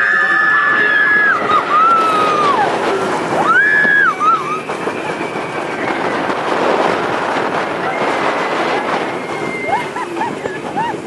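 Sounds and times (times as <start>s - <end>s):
riders screaming: 0.0s - 6.2s, 7.8s - 10.2s
roller coaster train rumbling: 0.0s - 11.0s
rushing wind: 0.0s - 11.0s.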